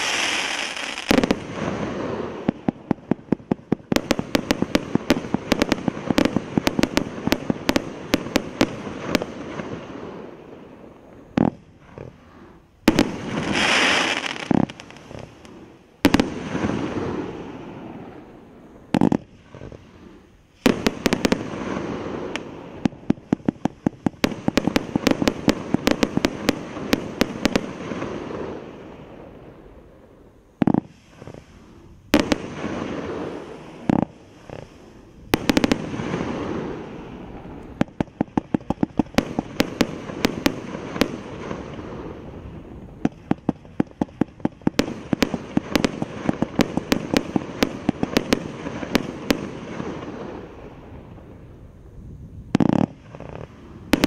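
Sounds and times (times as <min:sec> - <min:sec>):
firework hissing burst: 0:00.0 - 0:02.9, 0:11.7 - 0:23.6
firework cake rapid volleys: 0:00.0 - 0:29.8, 0:30.6 - 0:54.0.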